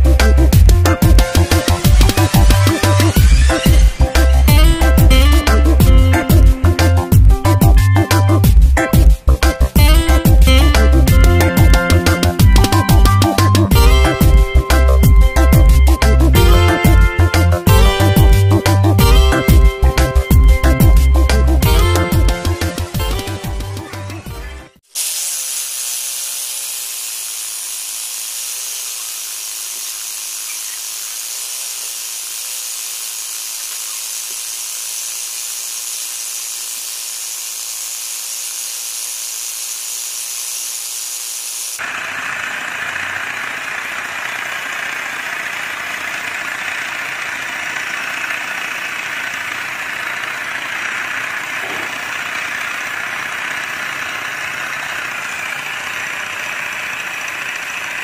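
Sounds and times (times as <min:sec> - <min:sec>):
small air compressor motor: 0:00.0 - 0:06.7, 0:24.8 - 0:58.0.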